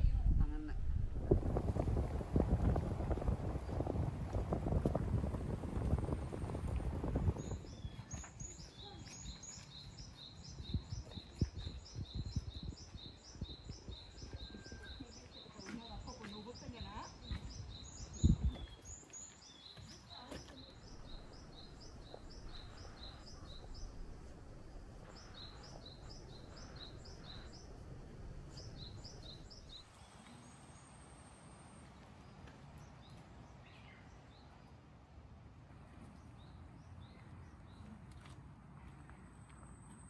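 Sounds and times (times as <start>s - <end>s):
outdoor background noise: 0.0s - 40.0s
songbird chirping: 5.8s - 34.7s.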